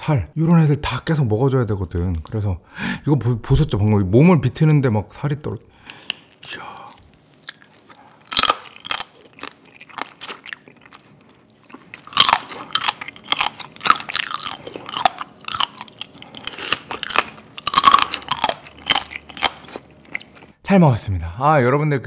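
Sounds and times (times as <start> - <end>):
wet chewing and crunching: 6.9 - 20.6.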